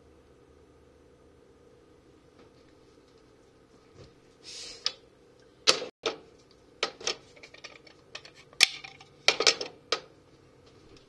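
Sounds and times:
plastic objects clicking and knocking: 0:06.8 - 0:10.1.

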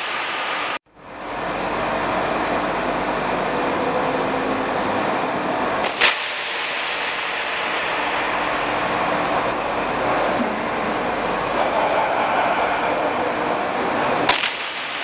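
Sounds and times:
steady rushing noise: 0:00.0 - 0:00.8, 0:06.0 - 0:15.0
gunshot crack: 0:14.3 - 0:15.0.

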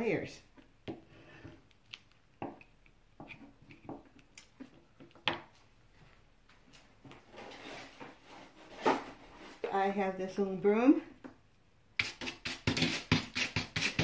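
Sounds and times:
tool scraping paint: 0:12.0 - 0:14.0.

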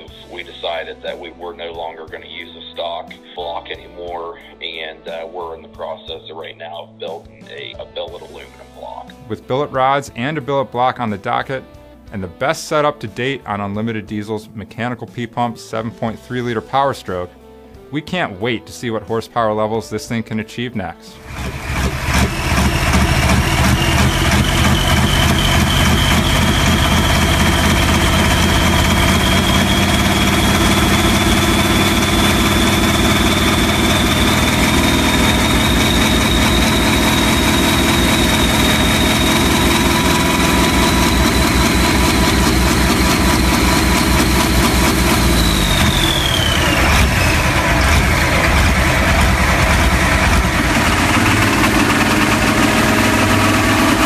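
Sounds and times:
diesel engine running: 0:00.0 - 0:00.8, 0:21.2 - 0:54.0
high whine: 0:21.2 - 0:54.0.

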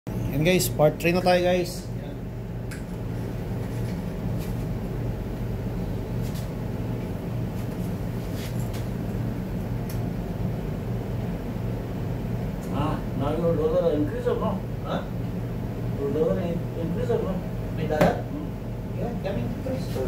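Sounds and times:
low machine hum: 0:00.1 - 0:20.0.

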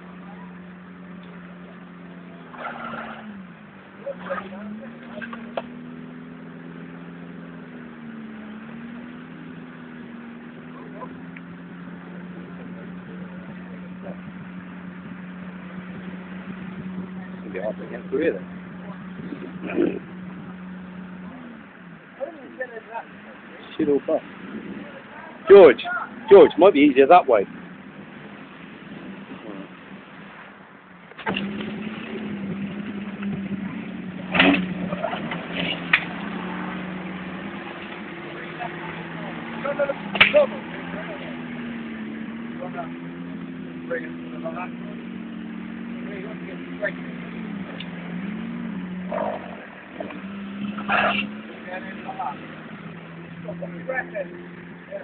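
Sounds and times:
buggy engine running: 0:00.0 - 0:55.0.

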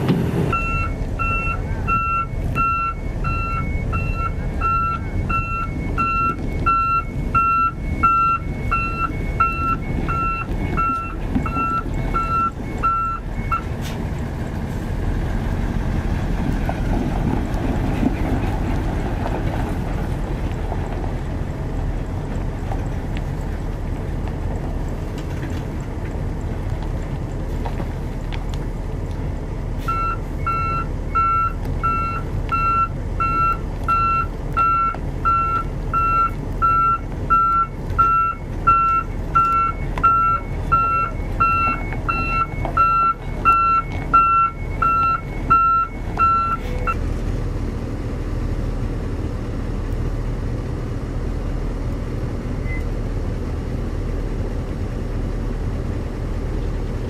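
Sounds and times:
diesel engine running: 0:00.0 - 0:57.0
truck reversing alarm beeping: 0:00.1 - 0:14.2, 0:29.8 - 0:47.1, 0:52.6 - 0:53.0.

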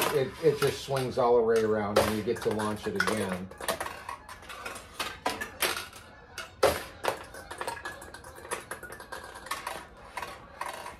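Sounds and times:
steel balls clattering: 0:00.0 - 0:10.9.

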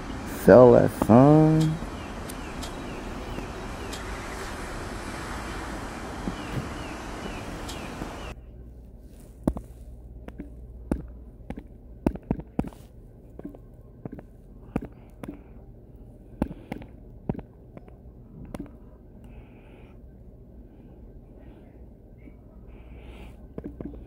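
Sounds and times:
steady rushing noise: 0:00.0 - 0:08.4.

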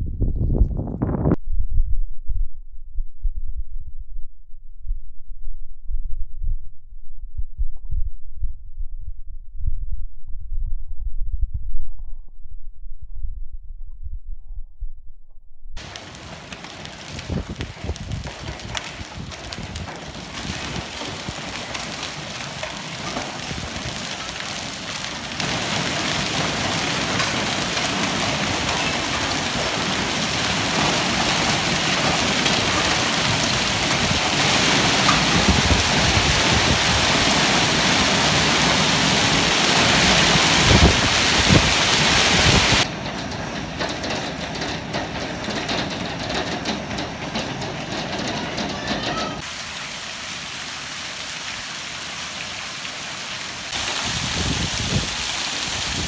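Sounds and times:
wind rumbling on microphone: 0:00.0 - 0:49.7, 0:53.6 - 0:56.0
hail and rain on concrete: 0:15.8 - 0:56.0.

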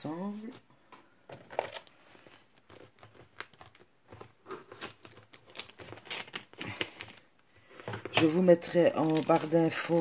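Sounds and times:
plastic wrapping crinkling: 0:01.3 - 0:10.0
scissors cutting plastic: 0:04.5 - 0:07.2.

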